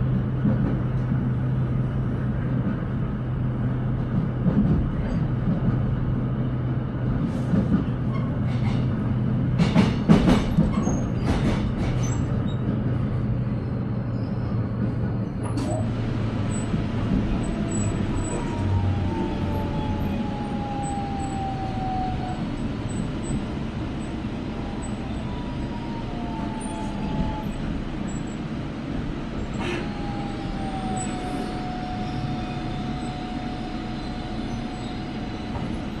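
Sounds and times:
electric train humming: 15.6s - 36.0s
train braking whine: 15.7s - 28.5s, 29.4s - 36.0s.

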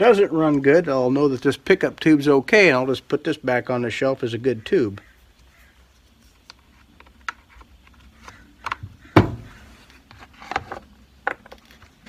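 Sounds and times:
plastic clicks and knocks: 6.4s - 12.0s.

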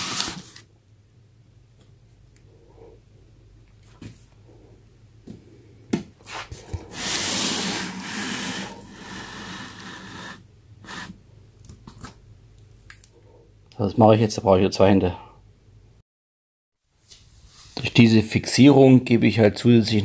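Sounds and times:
glass tank scraping on table: 6.9s - 11.1s.

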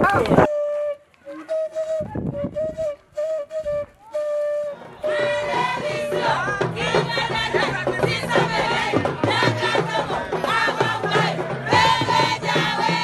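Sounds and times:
flute melody: 0.0s - 7.7s
voices: 4.0s - 13.0s.

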